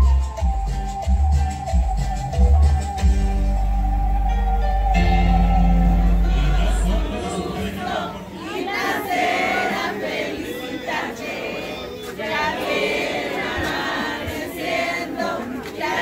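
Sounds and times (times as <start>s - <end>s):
crowd singing together: 4.9s - 16.0s.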